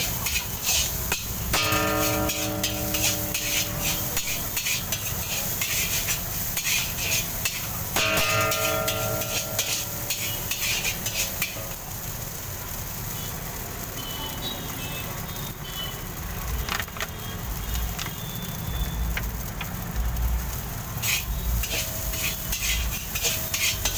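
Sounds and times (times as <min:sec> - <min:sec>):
metal spatula scraping a wok: 0:00.0 - 0:12.3, 0:20.9 - 0:23.9
wok ringing from metal strike: 0:00.0 - 0:12.4, 0:21.0 - 0:23.9
hot pan sizzling: 0:00.0 - 0:23.9.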